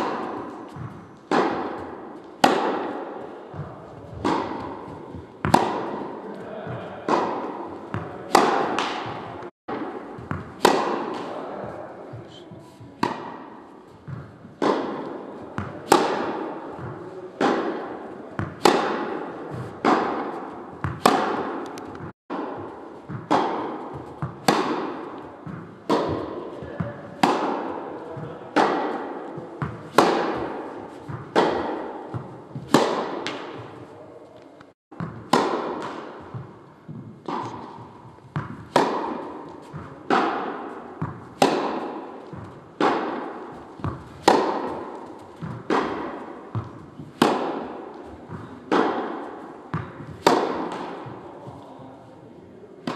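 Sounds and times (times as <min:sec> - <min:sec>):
tennis ball hit by rackets: 0:00.0 - 0:33.9, 0:34.9 - 0:51.8.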